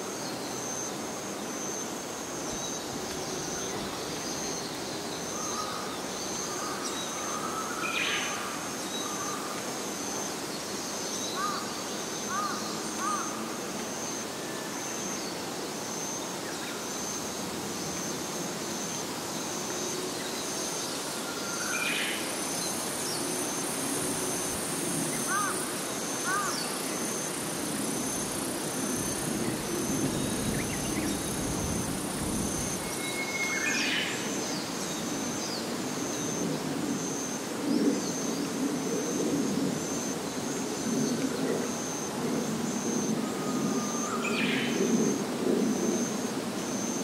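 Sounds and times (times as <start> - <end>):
insects pulsing call: 0.0 - 47.0
high insect buzz: 16.9 - 37.4.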